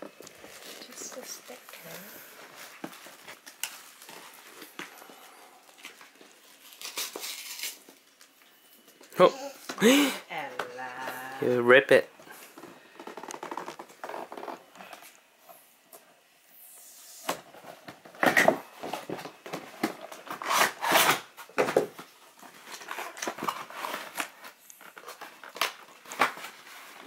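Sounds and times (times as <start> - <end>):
paper packaging ripping and rustling: 0.0 - 8.7, 17.5 - 27.0.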